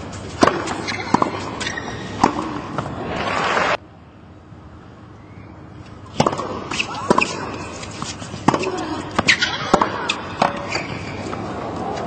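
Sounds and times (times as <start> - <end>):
racquet hitting tennis ball: 0.3 - 3.7, 6.1 - 11.5.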